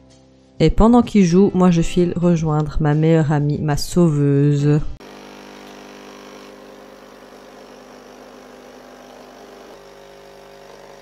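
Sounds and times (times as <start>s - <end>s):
coffee pouring into mug: 5.0s - 10.2s
coffee machine pump humming: 5.0s - 11.0s.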